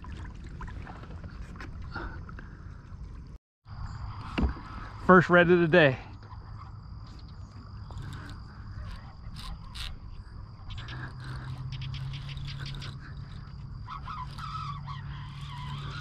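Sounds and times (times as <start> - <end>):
low hum: 0.0 - 16.0
marsh insects droning: 0.8 - 16.0
fishing rod and reel clicks: 7.0 - 16.0.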